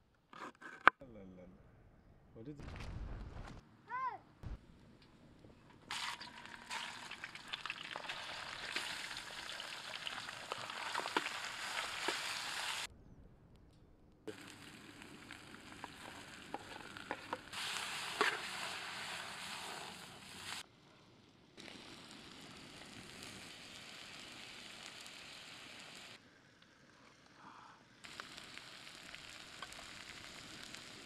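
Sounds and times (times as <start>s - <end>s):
meat sizzling in hot oil: 5.9s - 12.9s, 14.3s - 20.6s, 21.6s - 26.2s, 28.0s - 31.0s.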